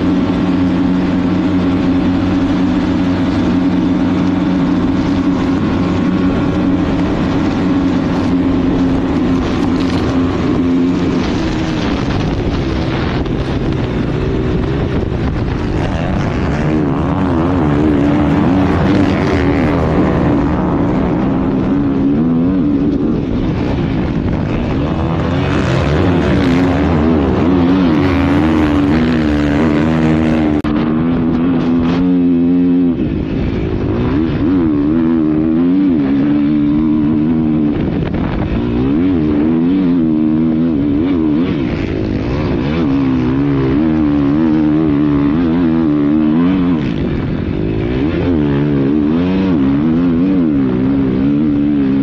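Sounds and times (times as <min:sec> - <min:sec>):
motocross bike engine revving: 0:00.0 - 0:52.0.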